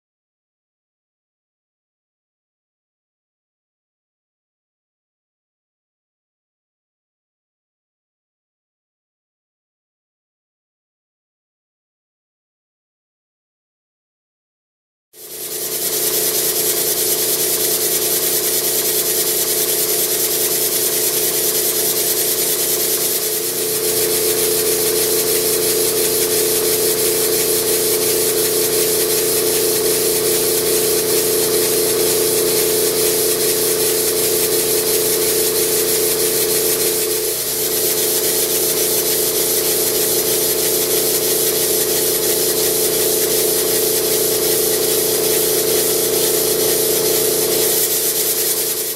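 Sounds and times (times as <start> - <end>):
model engine running noise: 15.2 - 48.9
steam exhaust hissing: 22.3 - 48.9.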